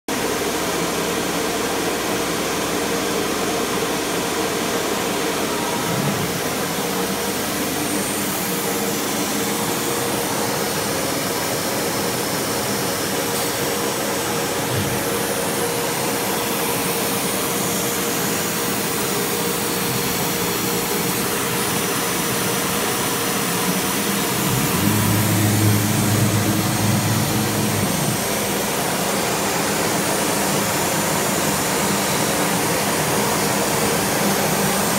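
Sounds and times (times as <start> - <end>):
cnc router with vacuum humming: 0.1 - 34.9
deeper hum: 24.1 - 29.2.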